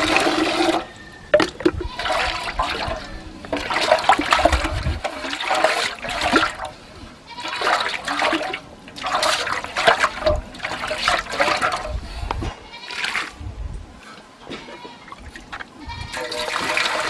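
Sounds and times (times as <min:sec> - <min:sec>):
hand sloshing water in basin: 0:00.0 - 0:06.8, 0:07.4 - 0:11.9, 0:15.2 - 0:17.0
water pouring into steel basin: 0:00.0 - 0:06.8, 0:07.4 - 0:12.0, 0:16.1 - 0:17.0.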